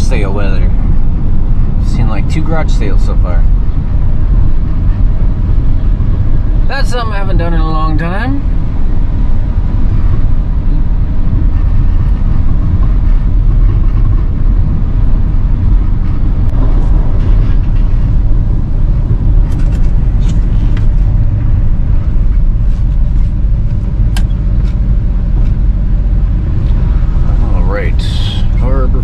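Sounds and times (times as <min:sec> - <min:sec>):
road noise: 0:00.0 - 0:29.0
truck engine rumble: 0:00.0 - 0:29.0.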